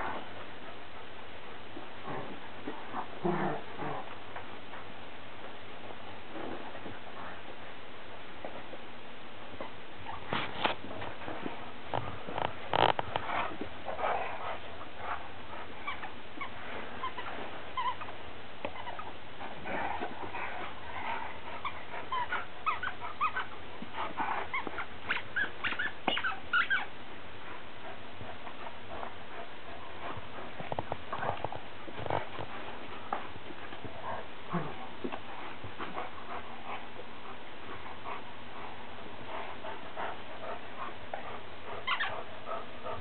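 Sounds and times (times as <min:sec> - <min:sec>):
dogs whining and yipping: 0:21.4 - 0:26.9, 0:41.7 - 0:42.2.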